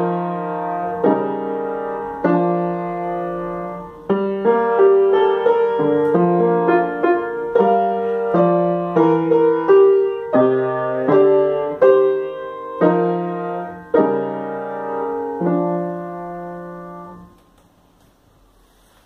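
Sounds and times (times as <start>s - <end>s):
piano chords: 0.0s - 17.6s.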